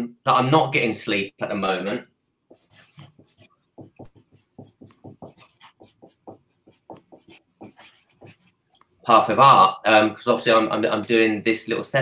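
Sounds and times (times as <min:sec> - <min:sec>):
marker pen scribbling on paper: 0:02.5 - 0:08.6.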